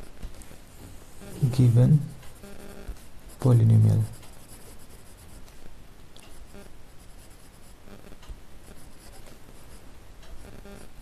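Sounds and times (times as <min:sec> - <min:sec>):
pen scratching on paper: 0:03.3 - 0:05.5, 0:06.3 - 0:09.8.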